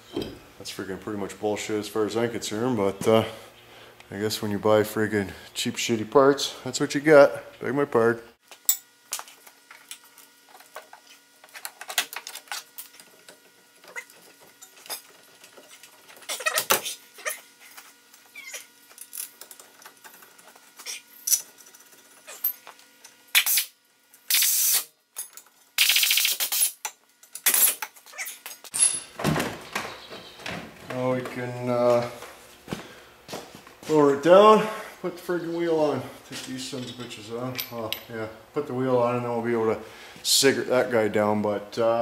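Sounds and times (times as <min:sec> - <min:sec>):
metal clinks and knocks: 0:28.6 - 0:30.1.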